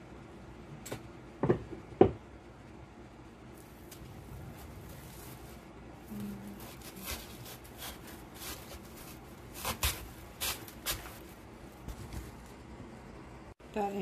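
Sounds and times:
artificial greenery rustling: 3.5s - 12.7s.

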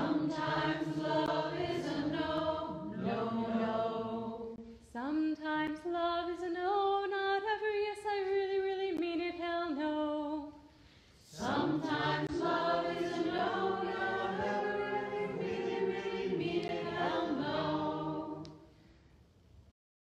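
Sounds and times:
voices singing a held chord: 0.0s - 4.7s, 11.2s - 18.7s
woman singing: 4.9s - 10.6s.

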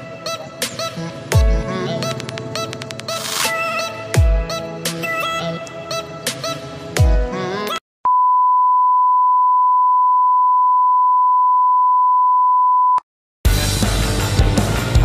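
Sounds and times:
heavy music track: 0.0s - 7.7s, 13.5s - 15.0s.

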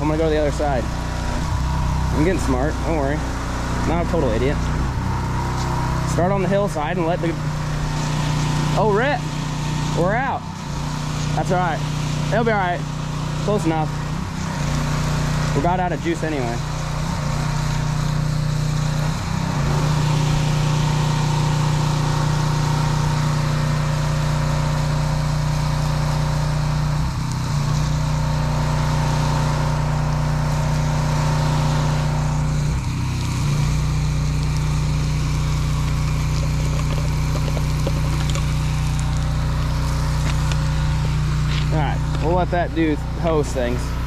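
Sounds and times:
pressure washer engine running: 0.0s - 44.0s
water spraying from hose: 0.0s - 44.0s.

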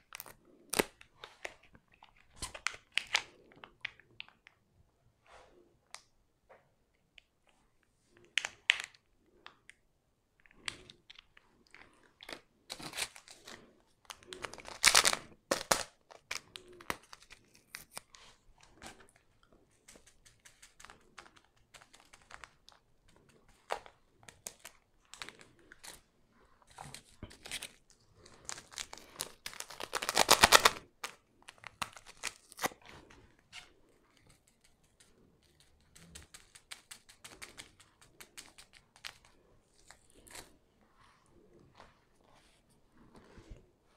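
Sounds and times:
paper sachets rustling and tearing: 26.9s - 32.8s.

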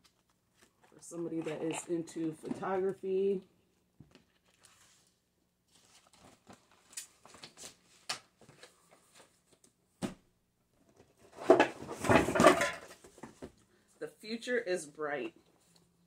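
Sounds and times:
paper rustling: 4.2s - 9.6s
page flips: 4.2s - 9.7s.

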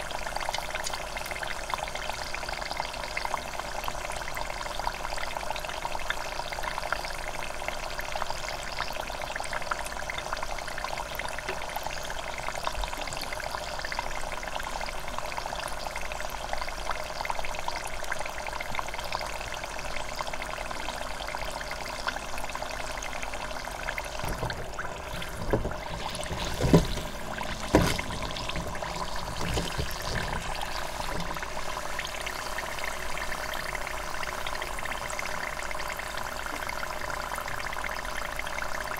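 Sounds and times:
oil sizzling in deep fryer: 0.0s - 38.9s
louder knocks: 24.2s - 30.4s.

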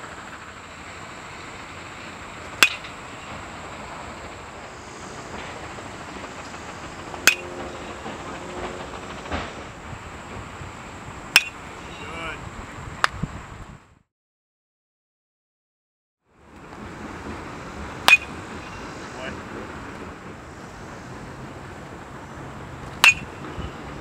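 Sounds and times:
steady outdoor hiss: 0.0s - 14.0s, 16.3s - 24.0s
bat cracking on baseball: 2.6s - 2.9s, 22.9s - 23.3s.

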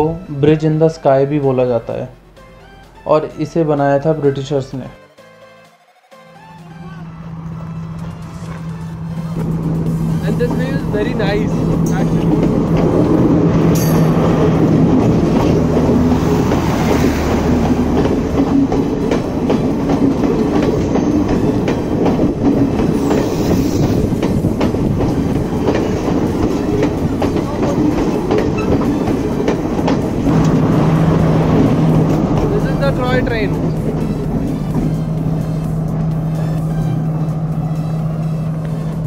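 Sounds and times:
low engine hum: 6.7s - 22.9s, 24.0s - 39.0s
train carriages rumbling: 6.9s - 39.0s
wheels clacking over rail joints: 8.0s - 39.0s.

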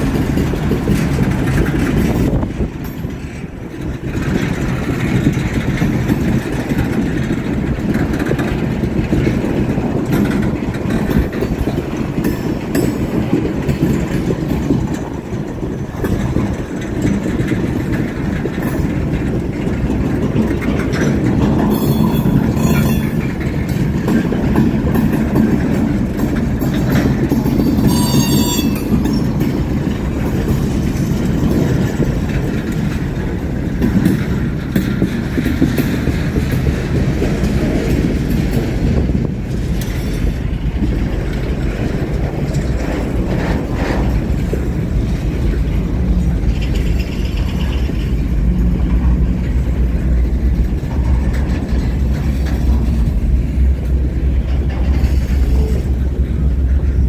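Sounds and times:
train wheels rumbling on rail: 0.0s - 57.0s
wheels clicking over rail joints: 0.0s - 57.0s
metallic wheel screech: 27.8s - 28.9s.

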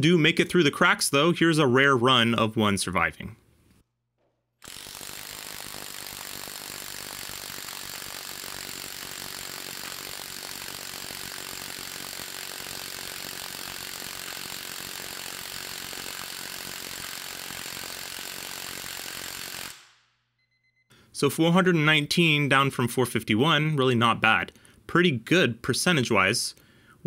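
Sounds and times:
impact wrench hammering: 4.2s - 20.0s.

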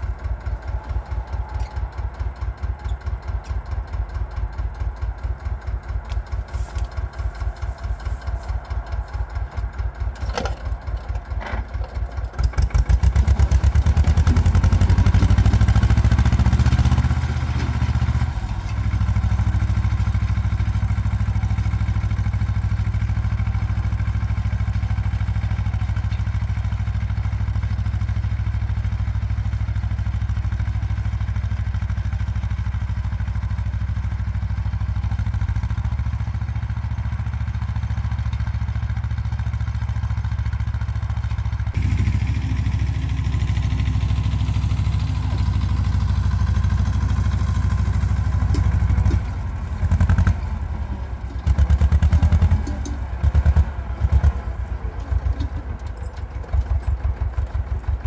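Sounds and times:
diesel tractor engine under load: 0.0s - 58.0s.

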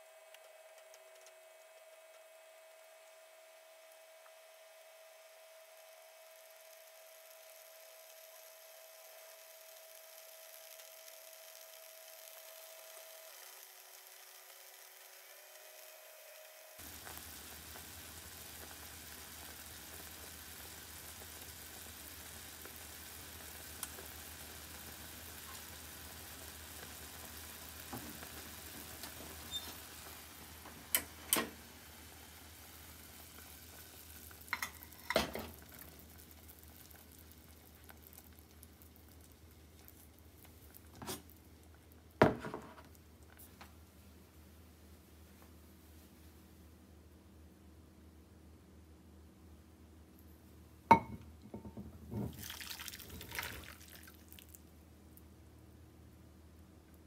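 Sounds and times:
soup bubbling in saucepan: 16.8s - 43.4s, 50.9s - 55.3s.

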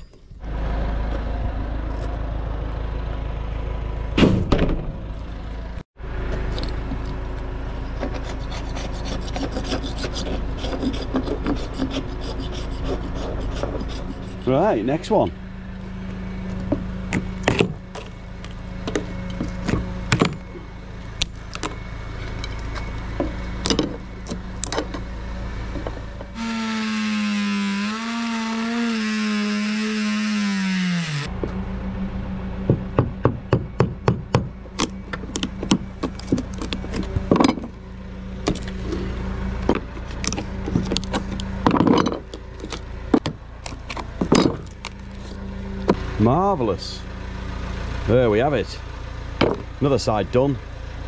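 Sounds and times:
steady low hum: 4.5s - 27.9s.

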